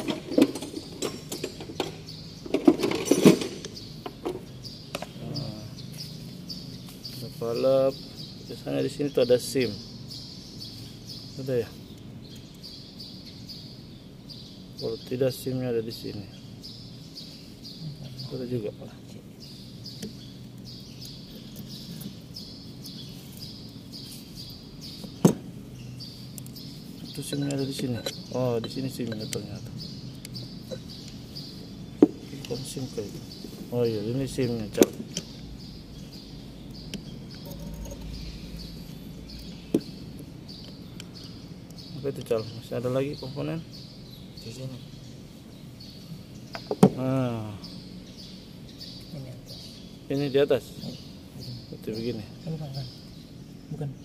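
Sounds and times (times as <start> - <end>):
metal clicks and knocks: 0.0 - 4.4
bird chirping: 0.0 - 54.0
steady low hum: 0.0 - 54.0.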